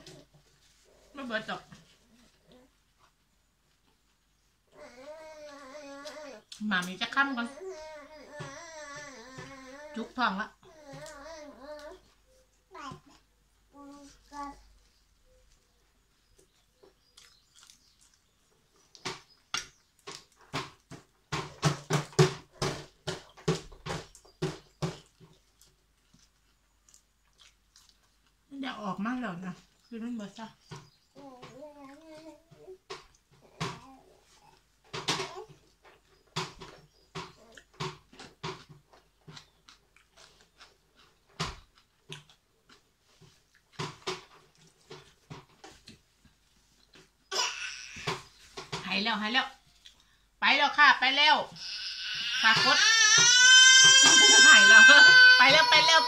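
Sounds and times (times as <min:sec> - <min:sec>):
crunchy chewing of raw vegetables: 0:15.4 - 0:20.9, 0:24.0 - 0:28.5, 0:35.5 - 0:43.8.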